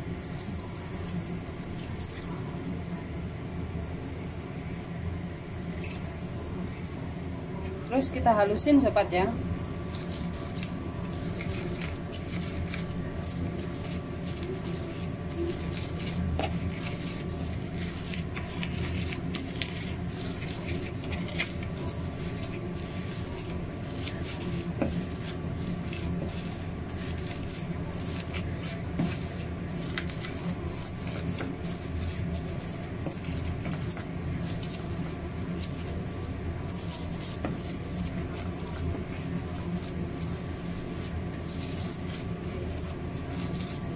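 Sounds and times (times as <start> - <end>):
steady low hum: 0.0 - 43.9
pestle crushing corn kernels: 9.8 - 43.9.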